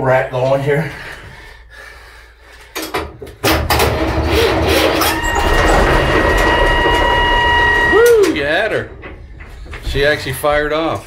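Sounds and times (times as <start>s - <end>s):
diesel engine cranking: 3.5s - 11.0s
steady whine: 4.8s - 11.0s.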